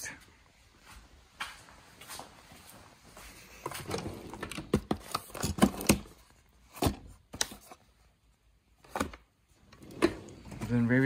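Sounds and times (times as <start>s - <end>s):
handling clicks and knocks: 3.6s - 7.7s.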